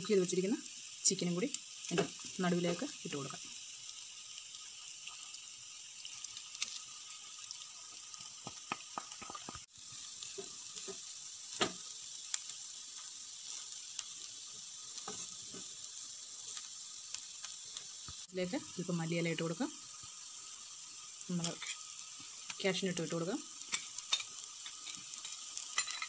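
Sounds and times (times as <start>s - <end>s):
faint sizzling hiss: 0.0s - 26.0s.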